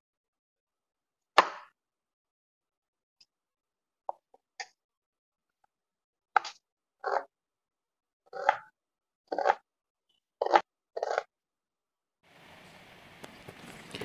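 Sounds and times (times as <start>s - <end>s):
knife cutting onion on board: 1.4s - 1.7s, 8.3s - 9.7s, 10.4s - 11.3s.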